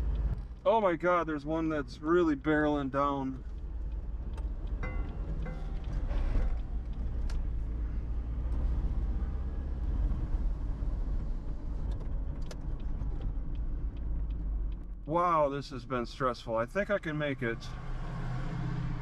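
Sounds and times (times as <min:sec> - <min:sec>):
car engine and road rumble: 0:00.0 - 0:19.0.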